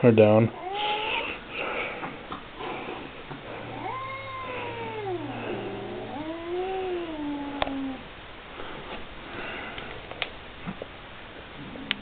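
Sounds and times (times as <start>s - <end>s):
cat meowing: 0.6s - 1.4s, 3.7s - 8.0s.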